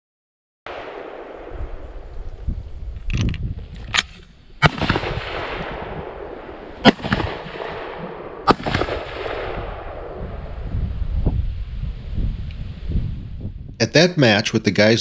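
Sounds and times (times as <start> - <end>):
rifle shots with rolling echo: 0.7 - 2.4, 3.8 - 10.7.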